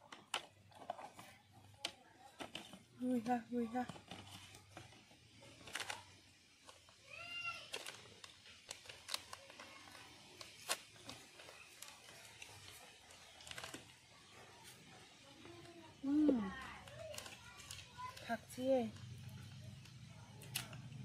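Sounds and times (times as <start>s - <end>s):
foil pouch crinkling: 0.0s - 21.0s.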